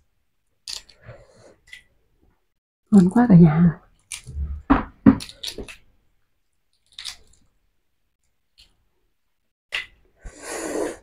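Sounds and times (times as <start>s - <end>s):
eggshell clicking and crackling: 0.5s - 1.0s, 3.9s - 4.4s, 5.1s - 6.0s, 6.7s - 7.6s.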